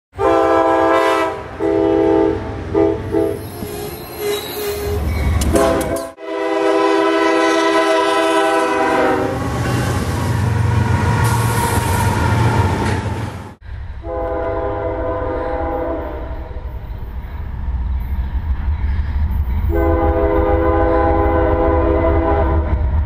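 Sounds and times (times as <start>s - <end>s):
locomotive air horn blasts: 0.2s - 3.6s, 4.7s - 10.2s, 14.0s - 16.5s, 19.7s - 22.8s
locomotive passing rumble: 0.7s - 23.0s.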